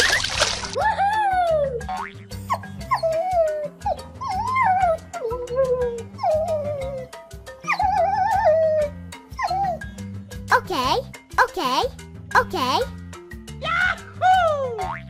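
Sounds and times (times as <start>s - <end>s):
cartoon dog whining and howling: 0.8s - 1.9s, 2.5s - 9.9s.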